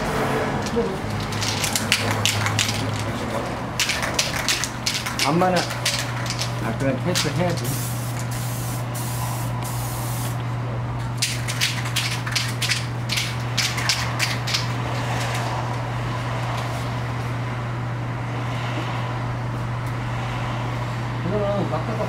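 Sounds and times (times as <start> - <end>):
aerosol spray can hissing: 7.2 - 10.4.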